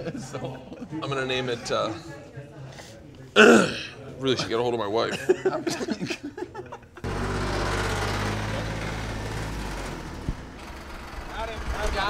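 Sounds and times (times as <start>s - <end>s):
vehicle engine humming: 7.0s - 12.0s.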